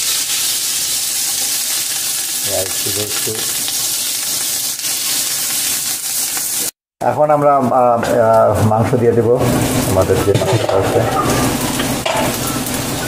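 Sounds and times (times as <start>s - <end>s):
hot oil sizzling in a pot: 0.0s - 6.8s, 9.4s - 13.0s.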